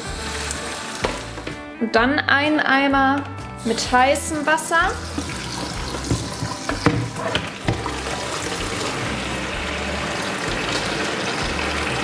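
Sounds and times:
tap water filling plastic bucket: 0.0s - 1.6s, 4.9s - 12.0s
bucket knocks on sink: 1.0s - 1.6s, 5.2s - 8.8s.

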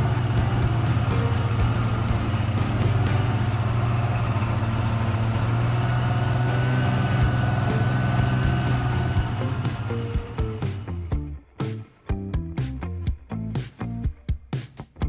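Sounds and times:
music playing: 0.0s - 3.7s, 6.4s - 15.0s
snowmobile engine humming: 0.0s - 11.0s.

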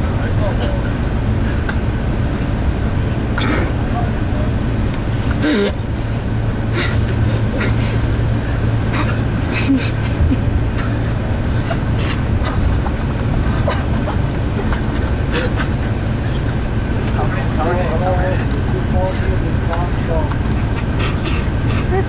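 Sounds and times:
bus road and engine rumble: 0.0s - 22.0s.

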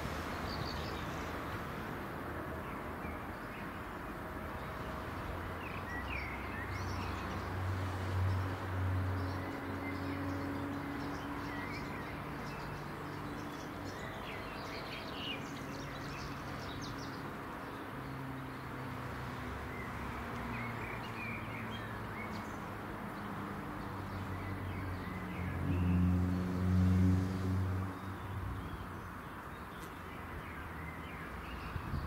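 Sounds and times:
birds chirping: 8.3s - 32.0s.

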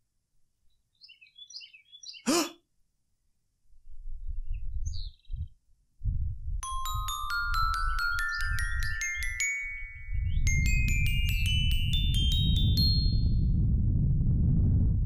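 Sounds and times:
bird chirps: 0.7s - 2.4s, 4.4s - 5.5s
glockenspiel-like chime notes: 6.6s - 13.6s
low rumbling: 10.2s - 15.0s.

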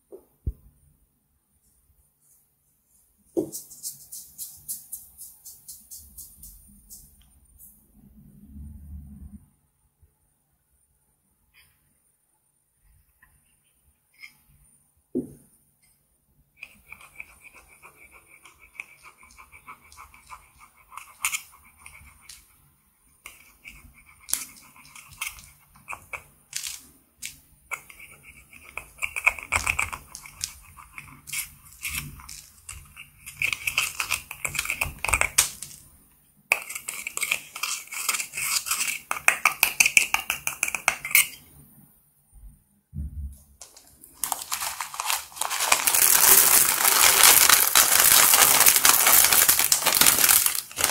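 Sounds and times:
tweezers scraping powder makeup: 27.7s - 35.2s, 36.5s - 41.4s.

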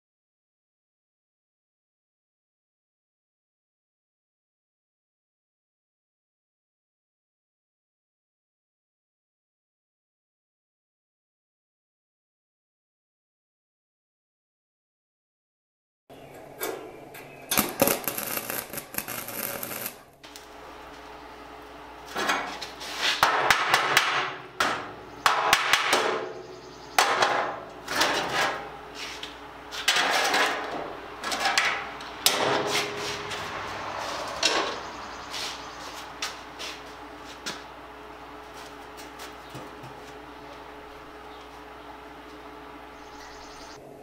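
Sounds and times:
hammer on sheet metal: 23.1s - 26.4s, 31.6s - 33.5s.

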